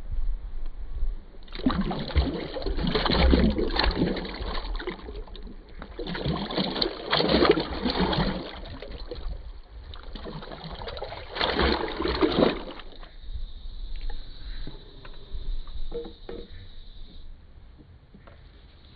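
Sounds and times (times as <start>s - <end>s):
water sloshing and splashing: 1.4s - 13.2s
plunger pumping through clothes: 1.5s - 9.3s.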